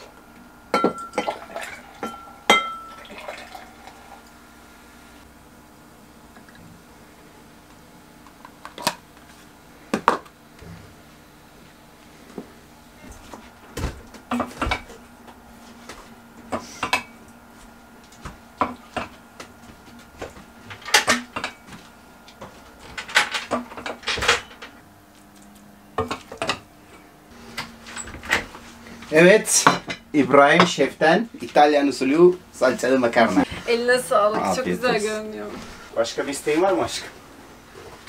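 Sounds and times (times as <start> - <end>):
faint steady hum: 0.0 - 38.0
spoon clinking on pot and plates: 2.0 - 3.0.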